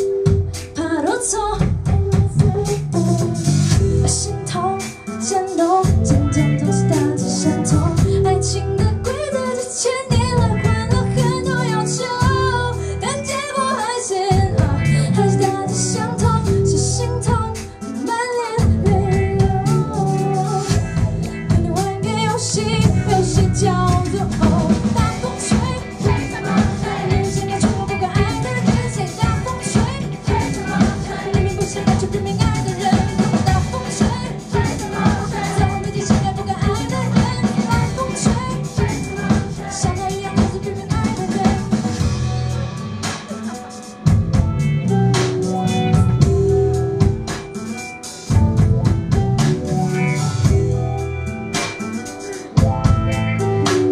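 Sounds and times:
drum kit beat: 0.0s - 53.9s
live band playing: 0.0s - 53.9s
woman singing into a microphone: 0.6s - 42.2s.

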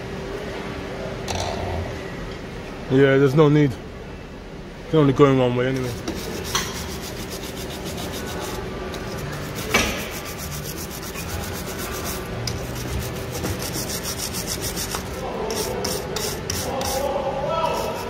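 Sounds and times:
wire brush scrubbing metal: 5.8s - 18.0s
sharp knock: 9.7s - 10.2s.

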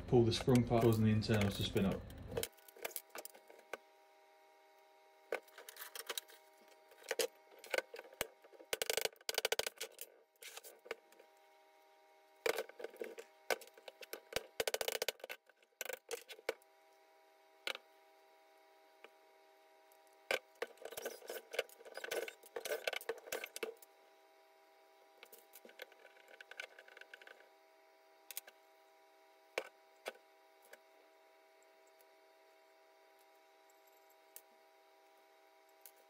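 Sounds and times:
faint steady hum: 0.0s - 36.0s
metal parts clicking and rattling: 20.6s - 23.8s.

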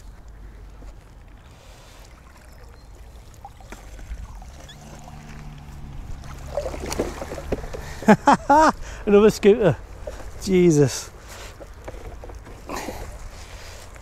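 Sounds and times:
water trickling and dripping: 0.0s - 12.5s
low steady rumble: 2.2s - 10.4s.

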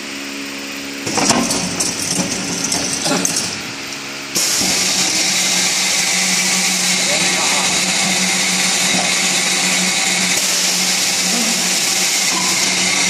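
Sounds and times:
machine humming: 0.0s - 13.0s
conveyor clanking and clicking: 1.0s - 3.8s.

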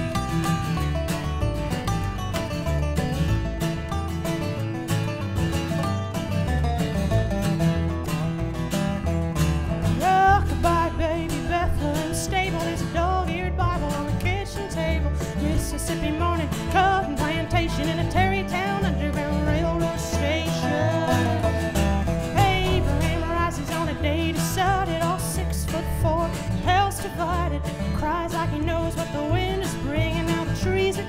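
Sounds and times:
resonator guitar: 0.0s - 31.0s
strummed acoustic guitar: 0.0s - 31.0s
upright bass: 0.0s - 31.0s
woman singing: 10.0s - 31.0s.

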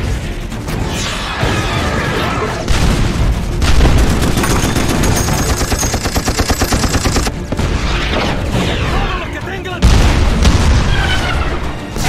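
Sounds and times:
explosions with deep rumble: 2.7s - 4.4s, 9.8s - 12.0s
rapid automatic gunfire: 3.1s - 7.6s.

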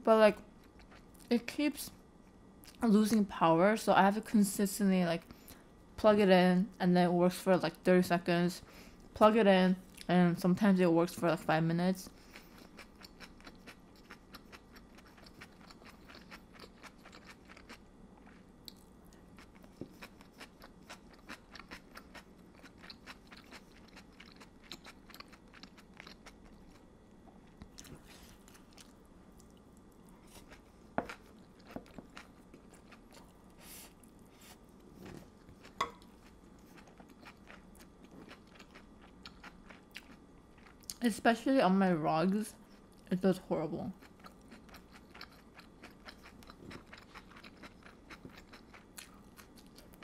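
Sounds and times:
person chewing food: 12.1s - 41.0s, 44.0s - 50.0s.

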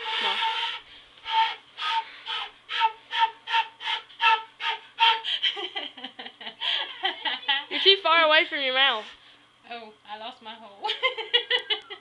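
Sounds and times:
breathy flute toots: 0.0s - 5.4s
person laughing: 5.1s - 7.8s, 10.9s - 12.0s.

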